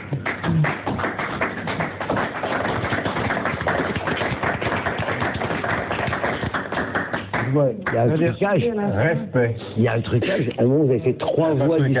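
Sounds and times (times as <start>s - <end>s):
audience applause: 0.0s - 8.1s.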